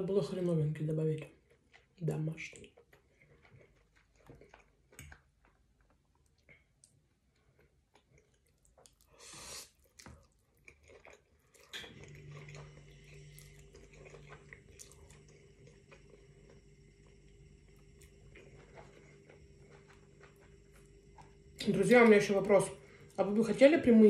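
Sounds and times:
person chewing: 0:01.3 - 0:21.6
person slurping spaghetti: 0:08.8 - 0:10.0
steady low hum: 0:10.2 - 0:24.0.

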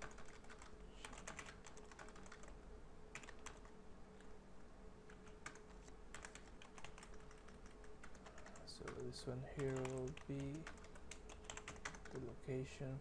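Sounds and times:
faint typing on keyboard: 0:00.0 - 0:04.4, 0:05.0 - 0:12.8.

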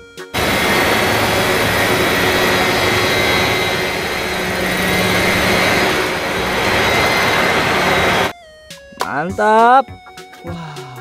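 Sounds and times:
high-pitched tone: 0:00.4 - 0:08.3
model helicopter rotors spinning: 0:00.4 - 0:08.3.

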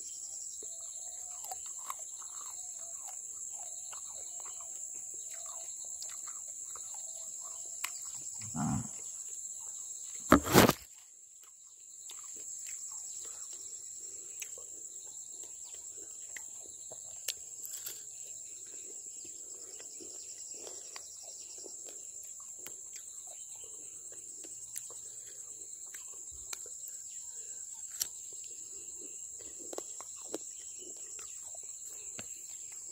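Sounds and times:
insect chorus shrilling: 0:03.8 - 0:10.9.

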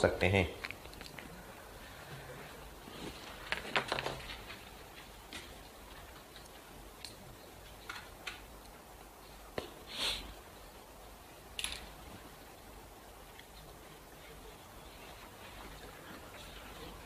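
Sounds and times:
small clicks and taps: 0:05.3 - 0:08.8
short soft hiss: 0:09.6 - 0:10.4.

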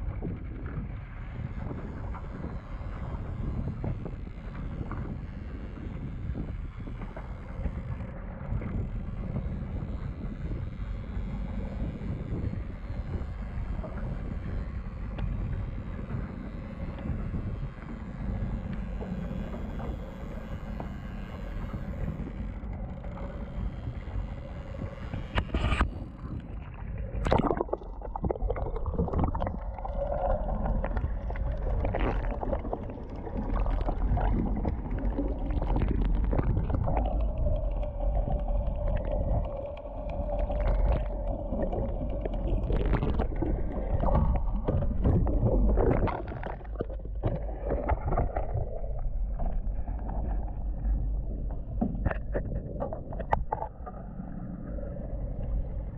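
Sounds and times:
boat engine running: 0:00.0 - 0:55.9
underwater churning and gurgling: 0:00.0 - 0:55.9
water splashes: 0:26.6 - 0:54.3.

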